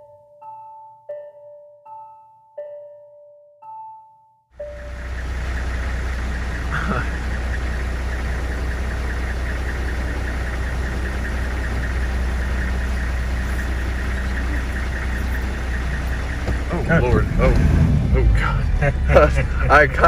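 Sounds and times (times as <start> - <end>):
intro music: 4.6 - 20.0
vehicle engine idling: 4.6 - 20.0.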